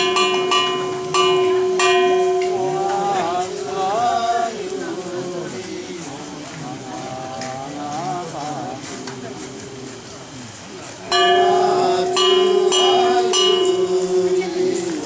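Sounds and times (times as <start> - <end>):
bell ringing: 0.0 - 4.2, 11.1 - 15.0
person chanting: 0.0 - 10.3, 11.1 - 15.0.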